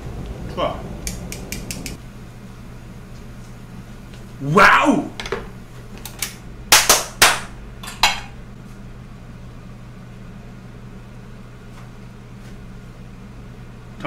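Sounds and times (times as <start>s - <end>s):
steady low hum: 0.0s - 14.0s
kitchenware clattering: 5.2s - 5.7s, 6.8s - 8.4s
plate set on counter: 7.8s - 8.4s.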